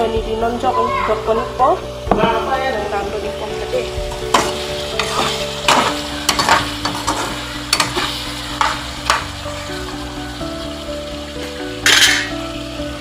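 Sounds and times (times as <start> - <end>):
meat sizzling in a pan: 0.0 - 13.0
spatula scraping a pan: 4.1 - 9.3.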